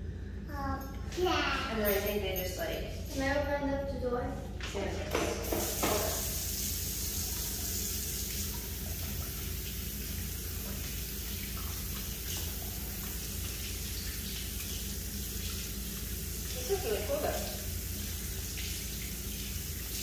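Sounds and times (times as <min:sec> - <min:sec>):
water running from sink faucet: 0:04.8 - 0:20.0.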